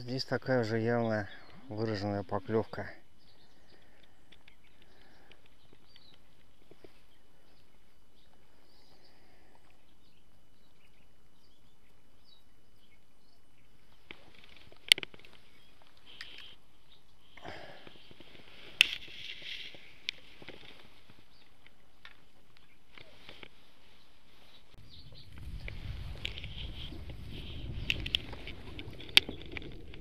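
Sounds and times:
faint bird chirps: 0:00.6 - 0:14.6, 0:15.3 - 0:18.3, 0:21.2 - 0:25.6.

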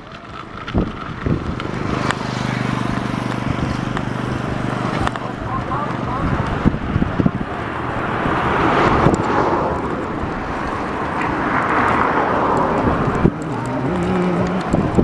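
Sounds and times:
road traffic passing: 0:00.0 - 0:15.0
wind on microphone: 0:00.2 - 0:15.0.

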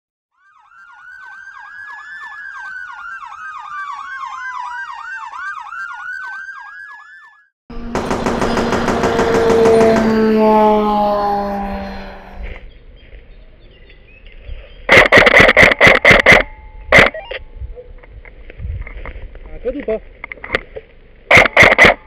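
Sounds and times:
emergency siren yelp and wail: 0:00.3 - 0:07.9, 0:08.5 - 0:12.6.

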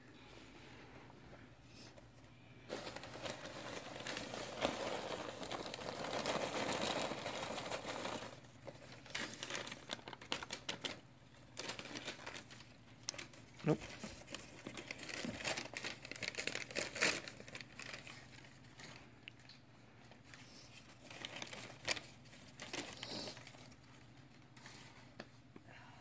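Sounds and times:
rustling and crinkling handling: 0:00.4 - 0:25.6.

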